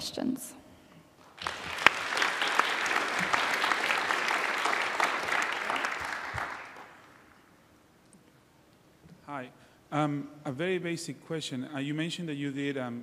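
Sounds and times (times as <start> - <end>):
audience applauding: 1.2 - 7.4.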